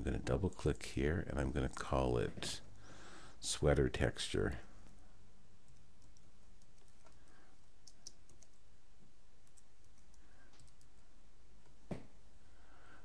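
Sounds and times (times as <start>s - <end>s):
keystrokes on computer keyboard: 5.7s - 8.7s, 9.4s - 11.0s.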